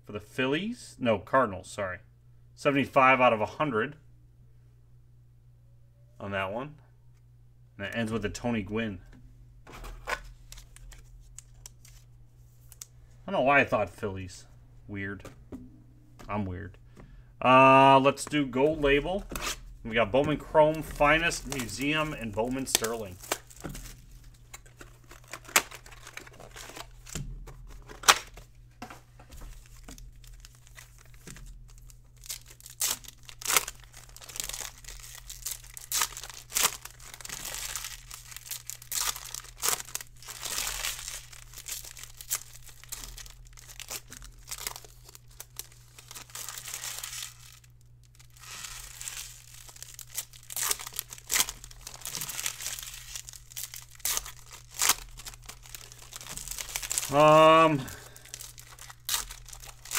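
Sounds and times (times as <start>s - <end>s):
steady low hum: 0.0s - 59.9s
foil wrappers tearing and crinkling: 18.8s - 28.4s, 29.4s - 59.9s.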